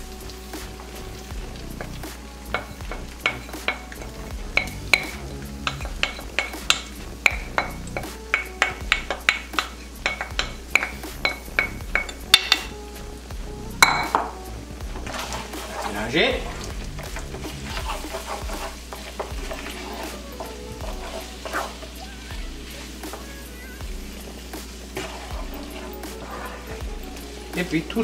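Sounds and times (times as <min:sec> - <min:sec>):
spoon clinking on ceramic bowl: 0:04.6 - 0:12.7, 0:13.8 - 0:14.3
spoon scraping bowl: 0:15.0 - 0:21.9, 0:24.2 - 0:27.4.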